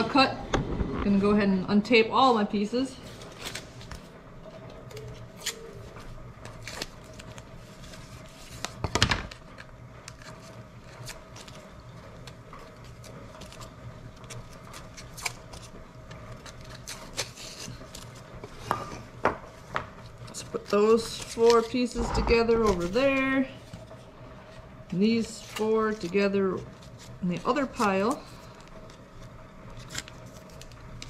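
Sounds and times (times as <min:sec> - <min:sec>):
tape being peeled off: 0:04.8 - 0:08.8, 0:28.8 - 0:31.0
steady low hum: 0:21.6 - 0:25.0.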